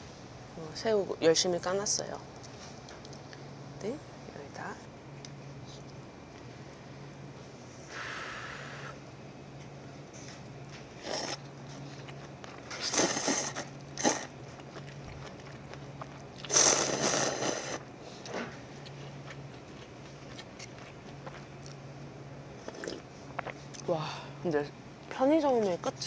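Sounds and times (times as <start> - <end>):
noodles being slurped: 11.0 - 11.4, 12.8 - 15.4, 16.1 - 17.8.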